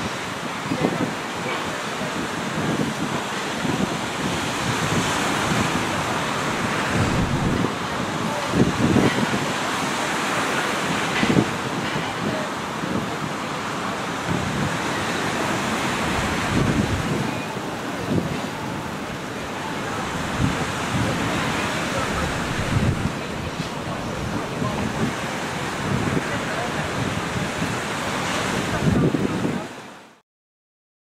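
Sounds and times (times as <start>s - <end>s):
surf: 0.0s - 11.8s, 12.5s - 30.0s
wind: 0.0s - 30.2s
wind buffeting microphone: 2.1s - 9.5s, 14.3s - 29.6s.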